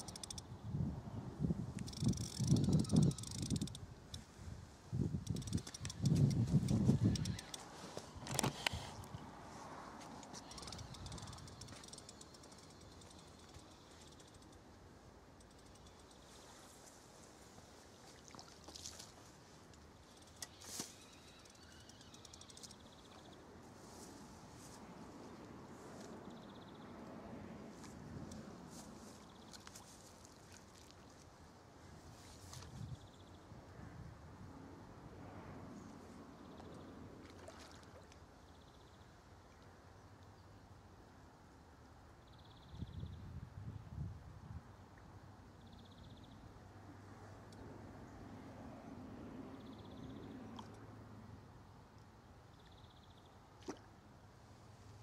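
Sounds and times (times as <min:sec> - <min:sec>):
fishing rod click and swish: 0:00.0 - 0:00.5, 0:01.7 - 0:04.3, 0:05.1 - 0:09.3, 0:09.9 - 0:14.7, 0:15.4 - 0:16.5, 0:19.7 - 0:23.3.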